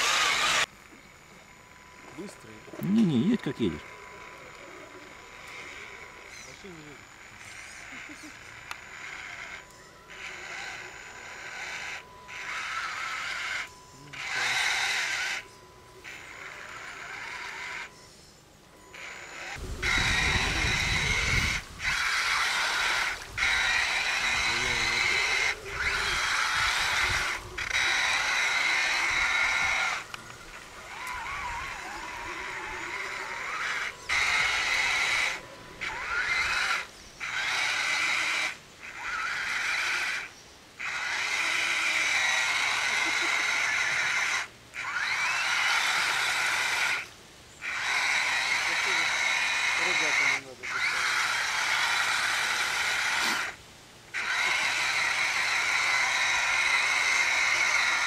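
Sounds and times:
electric motor whining: 0.0s - 58.0s.

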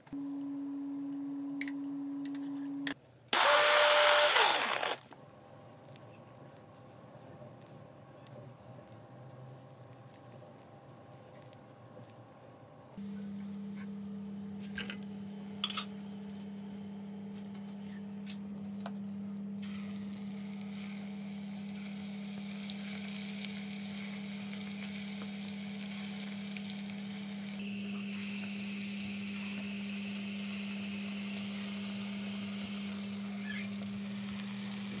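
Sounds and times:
oil sizzling and bubbling: 19.6s - 35.0s.

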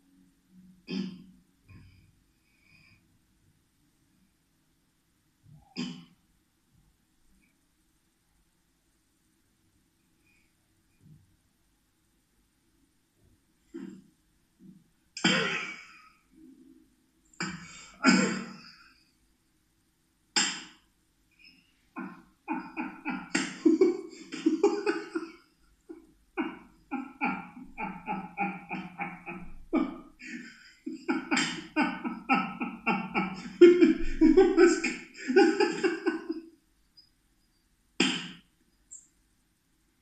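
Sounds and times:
man laughing hard: 22.0s - 25.3s, 26.4s - 36.4s.

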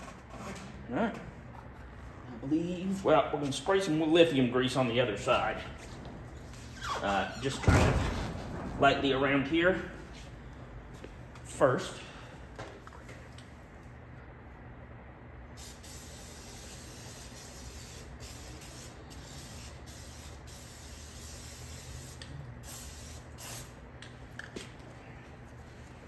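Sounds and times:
aerosol spray hissing: 15.6s - 23.8s.

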